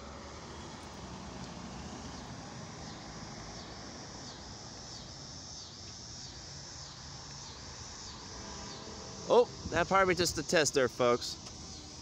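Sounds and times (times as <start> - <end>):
car driving past: 0.0 - 4.4, 7.8 - 9.8
insects chirping: 0.0 - 12.0.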